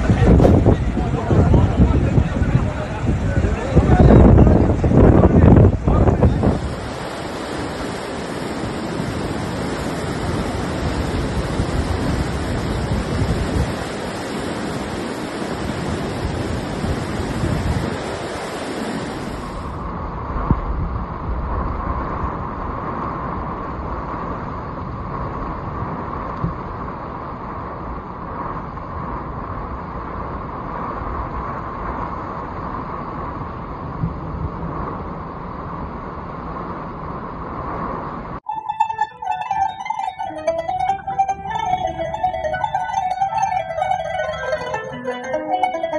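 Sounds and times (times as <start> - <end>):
heavy rain: 0.0 - 19.8
wind buffeting microphone: 0.0 - 38.4
floodwater rushing: 4.6 - 19.8.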